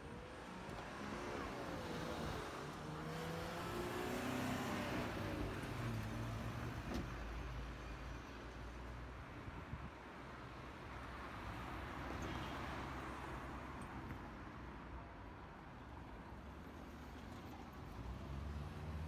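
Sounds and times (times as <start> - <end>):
cars moving: 0.1 - 7.1, 16.7 - 19.0.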